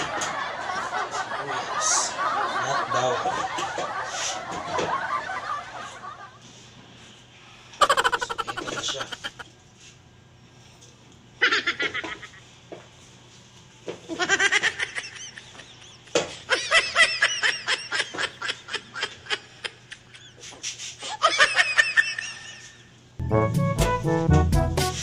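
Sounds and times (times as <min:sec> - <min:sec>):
high-pitched laughter: 0:07.8 - 0:09.5, 0:11.4 - 0:12.4, 0:14.1 - 0:22.9
brassy jazzy music: 0:23.2 - 0:25.0.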